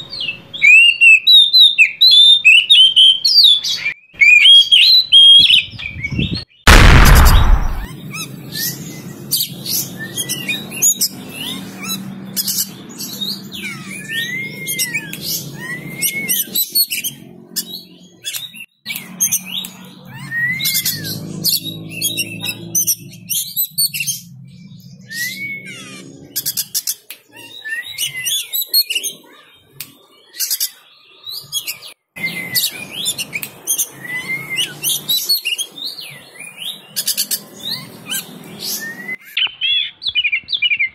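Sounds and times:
bird singing whistles and chips: 10.0 - 24.2, 29.8 - 40.9.

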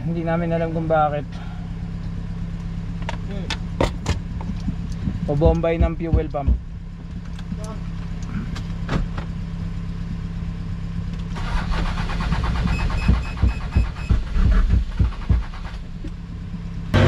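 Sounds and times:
low engine hum: 0.0 - 17.0
engine starter cranking: 11.3 - 16.2.

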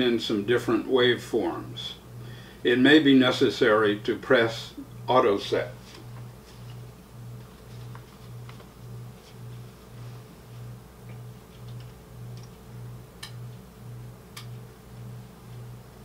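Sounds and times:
pulsing low hum: 4.6 - 16.0.

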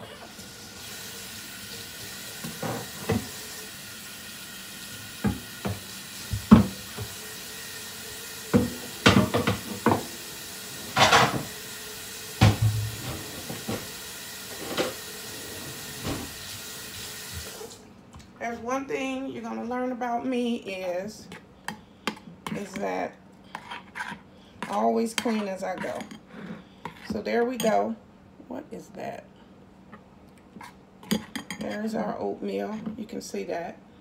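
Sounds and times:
kitchen tap running: 0.2 - 17.8
cutting board knocking in sink: 5.2 - 7.1, 8.5 - 10.1, 12.4 - 13.9.

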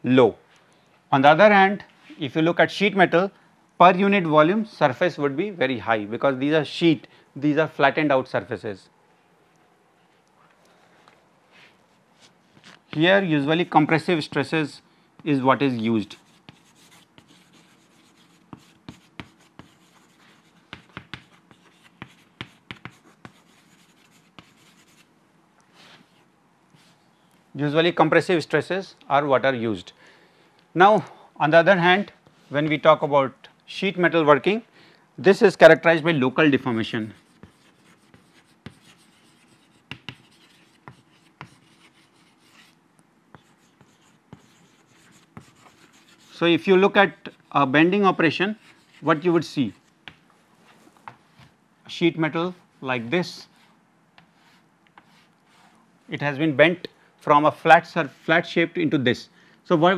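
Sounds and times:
chalk writing on chalkboard: 12.2 - 13.1, 16.0 - 25.1, 37.0 - 46.4, 48.5 - 50.2, 53.5 - 55.8.

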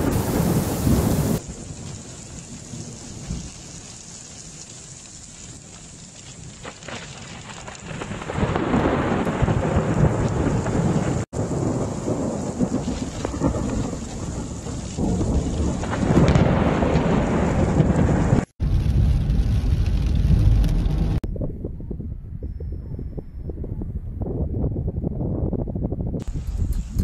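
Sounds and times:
thunder rumbling: 0.0 - 4.6, 6.4 - 27.0
heavy rain: 0.0 - 21.2.

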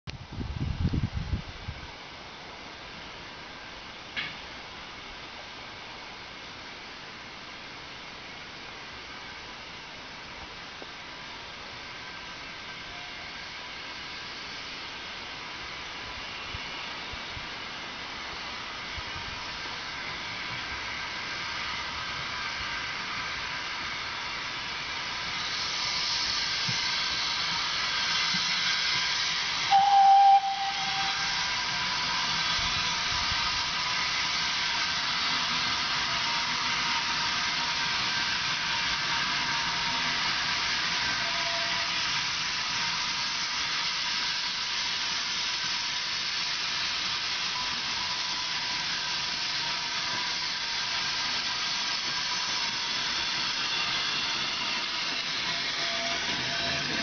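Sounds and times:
steam locomotive hissing: 1.9 - 57.0
steam whistle blast: 29.4 - 34.8, 38.7 - 43.6, 47.4 - 57.0.

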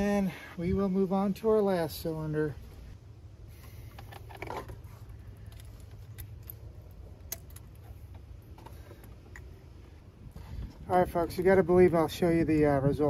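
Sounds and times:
hose and metal fittings clicking: 3.6 - 9.6.

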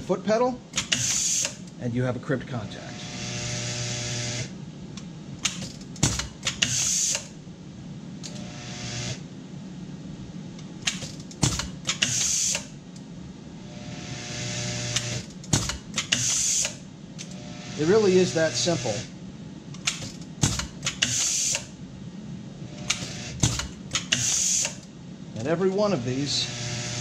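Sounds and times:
crimp machine sharp clicks: 19.8 - 21.7
vibratory parts bowl humming: 25.8 - 27.0.

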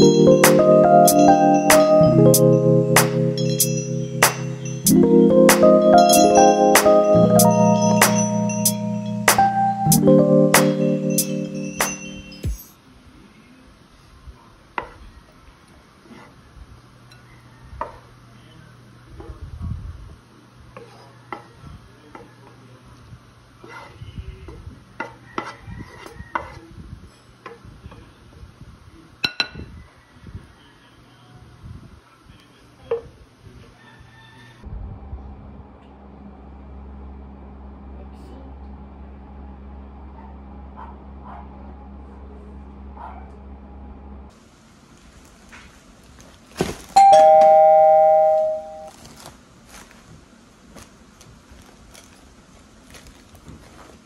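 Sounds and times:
ding-dong doorbell chime: 0.0 - 12.7, 47.0 - 49.0
faint rustles and clicks: 48.8 - 54.0.

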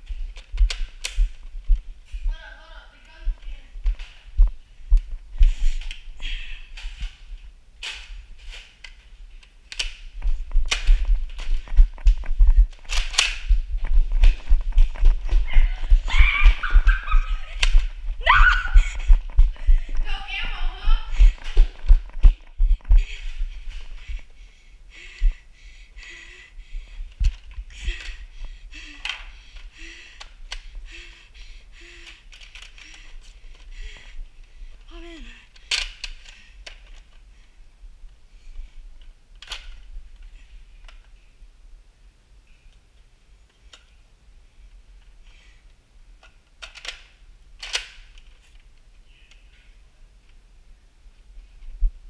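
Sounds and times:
footsteps: 0.0 - 25.4
person breathing hard: 4.3 - 7.5, 10.8 - 39.0.

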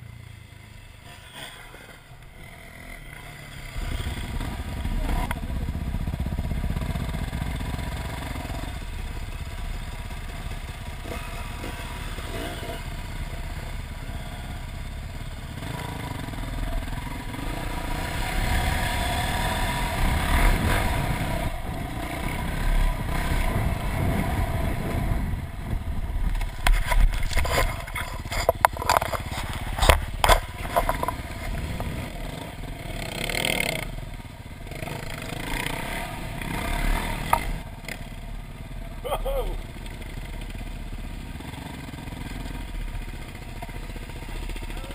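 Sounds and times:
dirt bike engine: 0.0 - 44.9
sharp knocks and clatter: 26.2 - 32.0.

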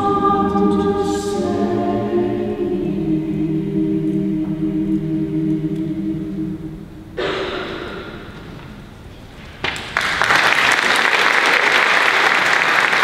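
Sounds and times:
choir holding final chord: 0.0 - 8.1
audience applause: 9.6 - 13.0.

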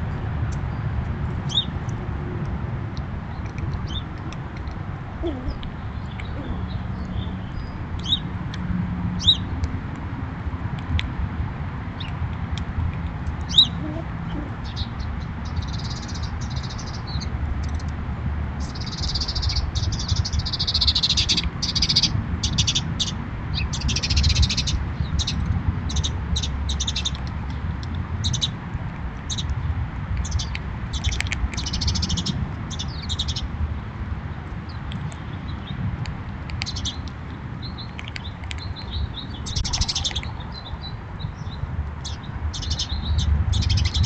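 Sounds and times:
small birds chirping: 0.6 - 1.8, 3.2 - 8.3, 9.2 - 9.7, 13.2 - 18.0, 18.6 - 28.6, 29.2 - 33.5, 34.6 - 44.0.

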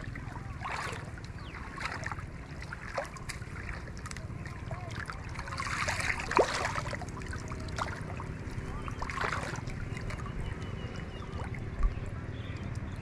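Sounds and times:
steady low rumble: 0.0 - 13.0
water sloshing and splashing: 0.0 - 13.0.

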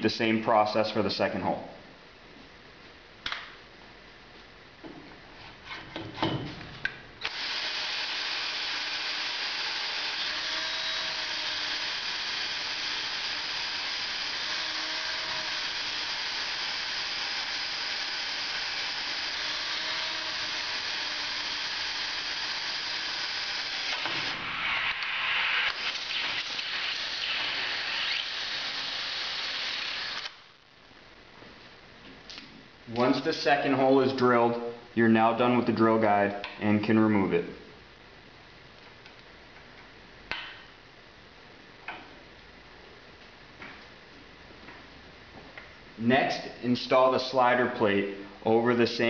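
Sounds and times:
drill bit scraping: 7.2 - 30.4
power drill cutting steel pipe: 7.2 - 30.4.

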